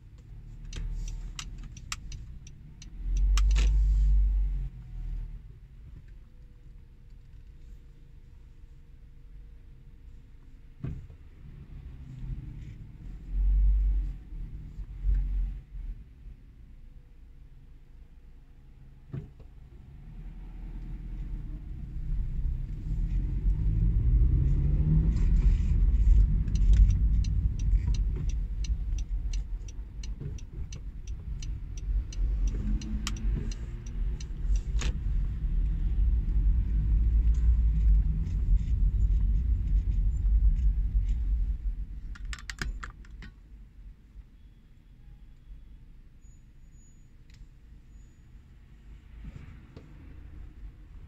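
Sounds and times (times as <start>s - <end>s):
road rumble: 0.0s - 51.0s
light ticking: 0.2s - 3.7s, 25.2s - 36.2s
car engine: 18.7s - 43.6s.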